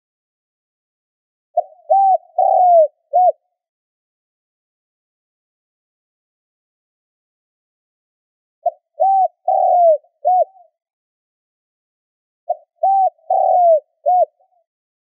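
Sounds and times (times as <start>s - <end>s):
dove cooing: 1.6s - 3.4s, 8.6s - 10.7s, 12.5s - 14.6s.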